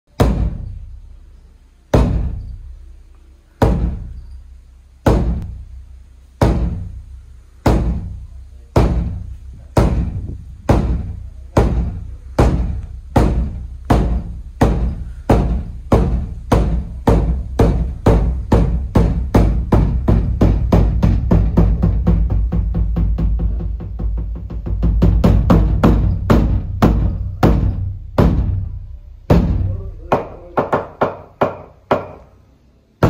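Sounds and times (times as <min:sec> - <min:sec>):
large drum booming strokes: 0:00.1 - 0:30.2.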